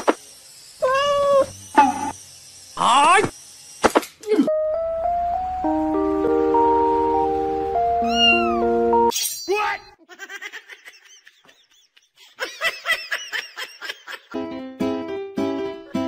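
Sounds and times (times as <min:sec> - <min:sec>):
cat meowing loudly: 0:00.8 - 0:01.5, 0:08.0 - 0:08.6
high-pitched cat mews: 0:00.8 - 0:01.5, 0:08.0 - 0:08.6
background music: 0:04.5 - 0:09.1.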